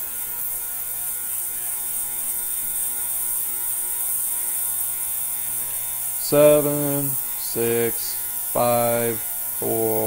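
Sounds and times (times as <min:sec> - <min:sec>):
ultrasonic cleaner buzz: 0:00.0 - 0:10.0
high hiss: 0:06.2 - 0:10.0.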